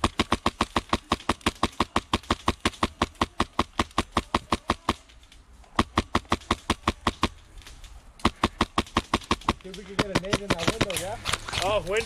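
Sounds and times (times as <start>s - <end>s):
airsoft rifle firing bursts: 0.0s - 5.0s, 5.8s - 7.4s, 8.2s - 11.0s.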